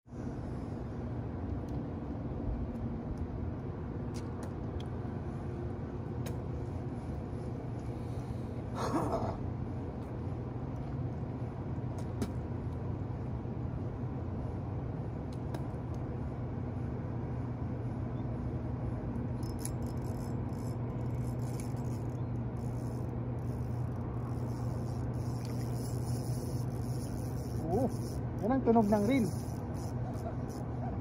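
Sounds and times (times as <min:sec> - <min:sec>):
steady low rumble: 0:00.1 - 0:31.0
fishing reel drag ticking: 0:19.4 - 0:30.8.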